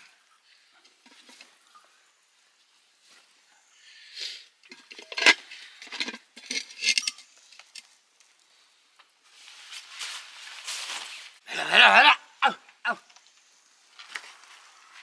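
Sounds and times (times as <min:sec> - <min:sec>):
metal pots clinking and knocking: 0:04.6 - 0:07.3
cloth and sacking rustling: 0:09.3 - 0:11.4.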